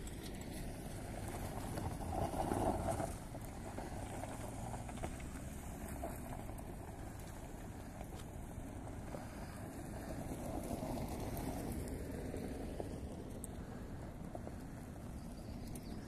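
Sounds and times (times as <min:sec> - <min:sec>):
vehicles driving on gravel: 0:00.0 - 0:16.0.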